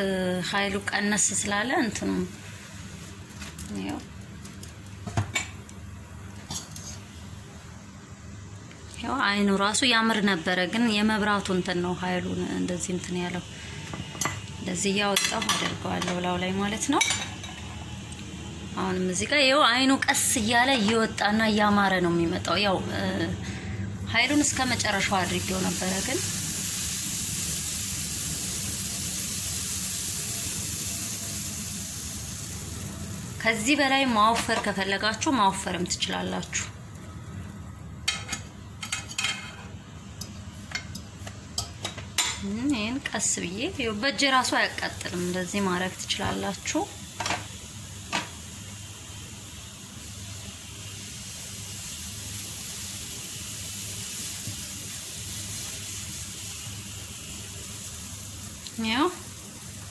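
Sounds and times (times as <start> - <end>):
batter sizzling in a pan: 0.0 - 7.9, 23.5 - 42.5, 43.2 - 59.9
low steady hum: 0.0 - 29.5, 30.1 - 53.3.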